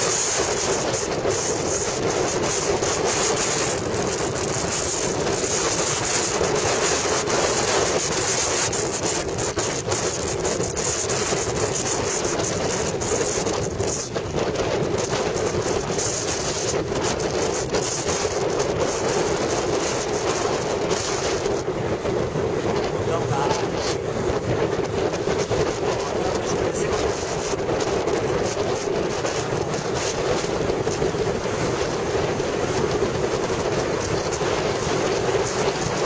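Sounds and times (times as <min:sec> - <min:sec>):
motorcycle engine drone: 0:00.0 - 0:36.0
wind and road noise: 0:00.0 - 0:36.0.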